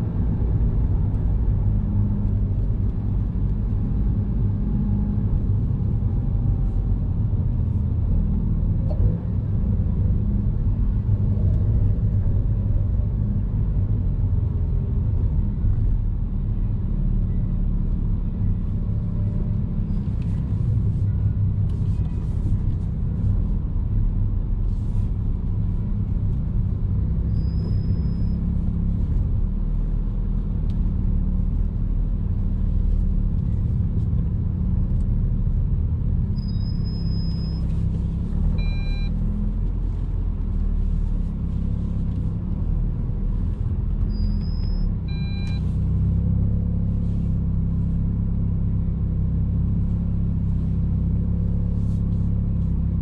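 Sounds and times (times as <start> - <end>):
car engine low rumble from cabin: 0.0 - 53.0
short beep: 38.6 - 39.2, 44.1 - 45.7.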